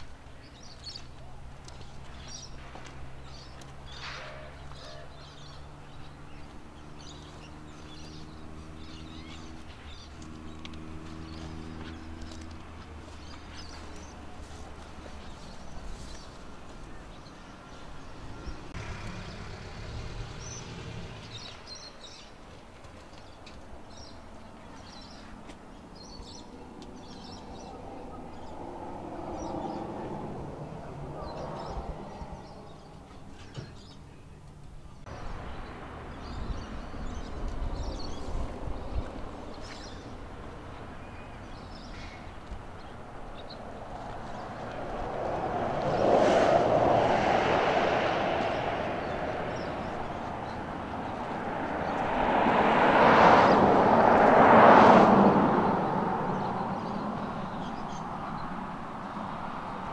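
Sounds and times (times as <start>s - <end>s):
birds chirping: 0.0s - 59.9s.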